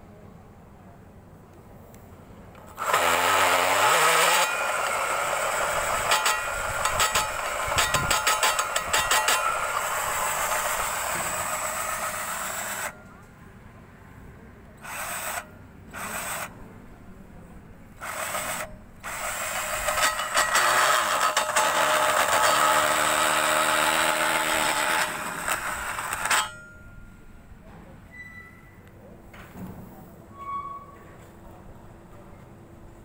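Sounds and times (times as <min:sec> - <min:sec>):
drill grinding steel: 0:02.7 - 0:13.0, 0:14.8 - 0:16.5, 0:18.0 - 0:26.8.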